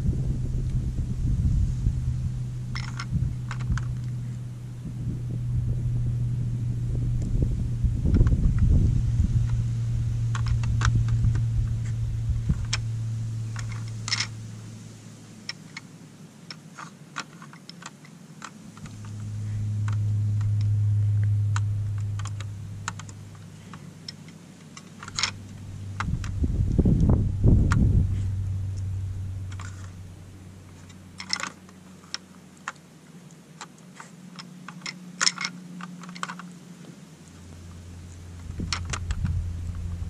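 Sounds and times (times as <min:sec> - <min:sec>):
low steady hum: 0:00.0 - 0:40.0
plastic clicks and clacks: 0:16.5 - 0:18.9, 0:33.6 - 0:36.5.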